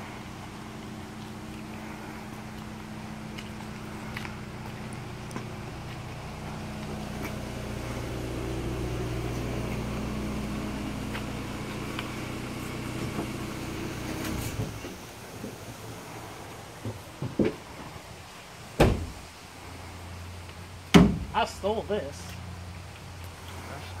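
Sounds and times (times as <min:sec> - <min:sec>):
vehicle engine running: 0:00.0 - 0:17.2.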